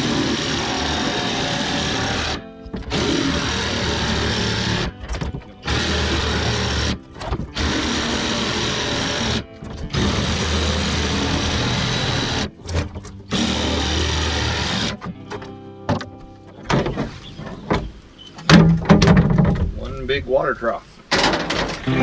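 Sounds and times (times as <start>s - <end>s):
reciprocating saw cutting plastic: 0.0s - 4.9s, 5.6s - 15.0s.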